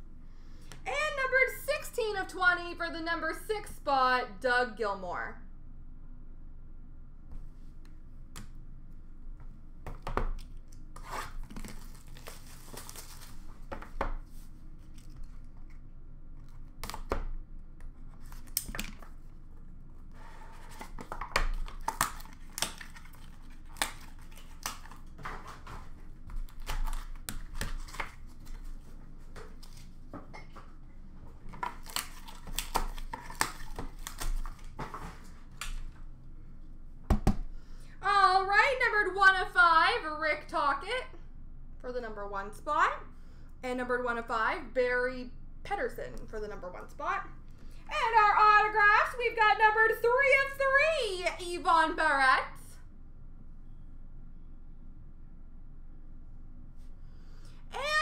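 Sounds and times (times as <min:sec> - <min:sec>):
packaging tearing and crinkling: 0:11.0 - 0:13.6, 0:20.6 - 0:25.7, 0:26.3 - 0:28.7, 0:31.6 - 0:35.9.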